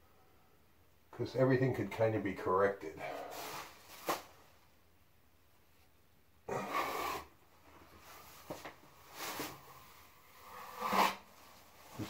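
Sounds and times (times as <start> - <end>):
drywall knife scraping: 10.4 - 11.4.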